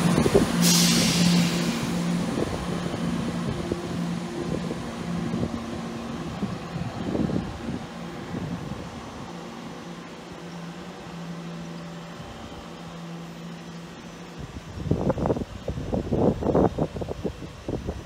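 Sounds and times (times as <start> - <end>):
diesel train engine humming: 0.0 - 18.0
hiss burst: 0.3 - 2.2.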